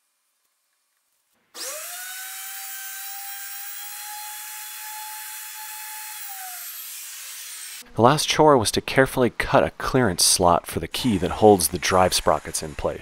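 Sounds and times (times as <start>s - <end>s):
router bit cutting wood: 1.6s - 7.8s, 11.0s - 13.0s
router motor whining: 1.6s - 7.8s.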